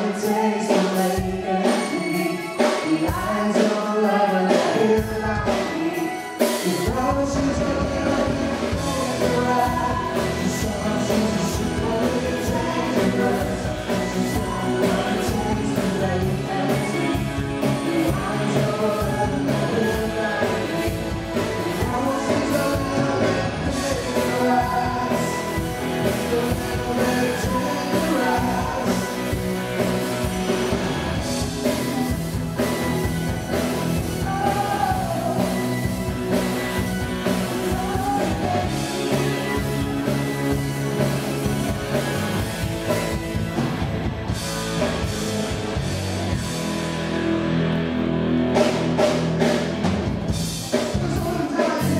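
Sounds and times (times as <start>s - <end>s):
woman singing: 0.0s - 25.5s, 37.6s - 39.6s
live rock band playing: 0.0s - 51.9s.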